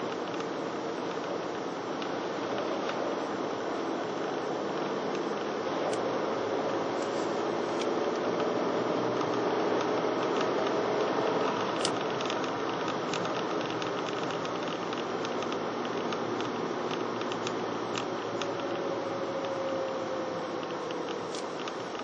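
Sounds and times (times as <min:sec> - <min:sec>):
car driving heard from inside: 0:00.0 - 0:22.0.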